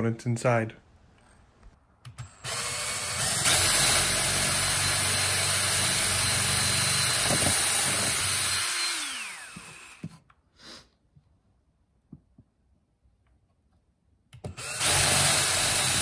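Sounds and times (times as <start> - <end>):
power drill boring into wood: 2.2 - 10.2, 14.5 - 16.0.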